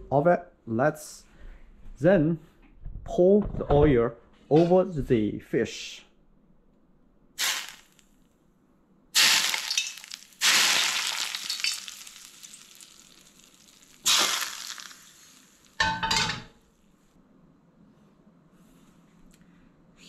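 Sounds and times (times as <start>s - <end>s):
hot oil sizzling on fish: 7.4s - 8.0s, 9.2s - 15.8s.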